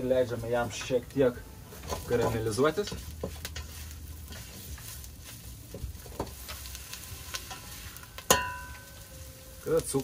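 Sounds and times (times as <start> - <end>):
onion and garlic sizzling in oil: 0.0 - 10.0
spatula scraping a metal pan: 1.8 - 5.6.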